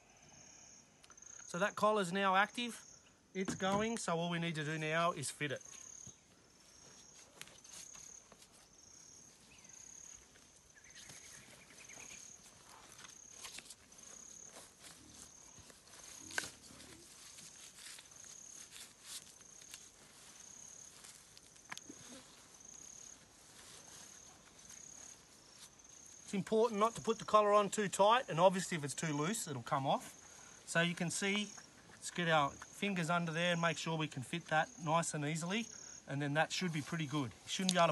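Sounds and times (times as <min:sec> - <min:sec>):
cricket chirping: 0:00.0 - 0:37.9.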